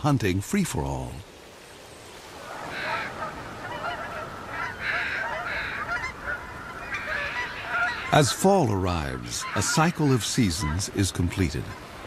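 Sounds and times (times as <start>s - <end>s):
geese honking: 2.4s - 8.5s, 9.3s - 11.0s.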